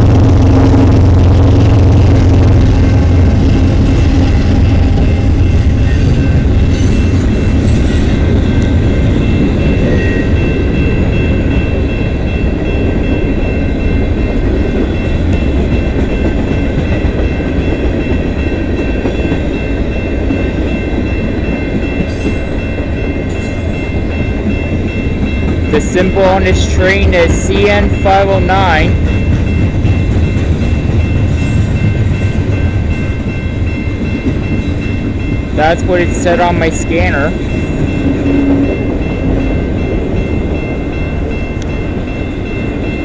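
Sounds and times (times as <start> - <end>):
freight train rumbling past: 0.0 - 43.0
high-pitched ringing tones: 0.2 - 15.9, 27.7 - 43.0.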